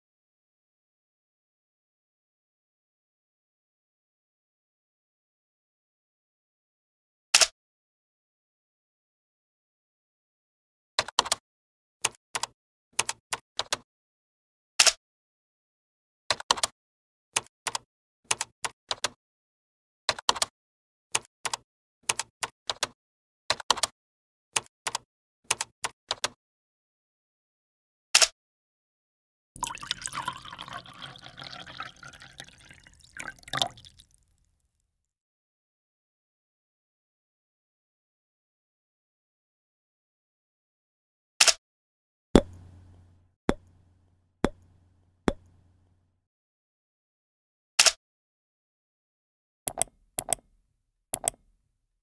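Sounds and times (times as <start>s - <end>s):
hard objects knocking: 42.4s - 43.7s
sharp typing-like clicks: 51.2s - 51.4s.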